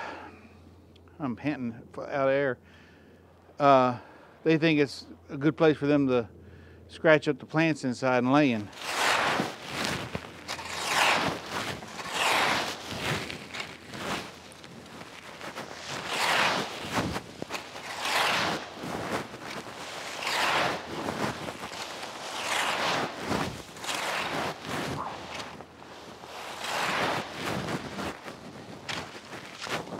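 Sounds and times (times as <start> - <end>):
rake rustling through dry leaves: 8.6 - 29.9.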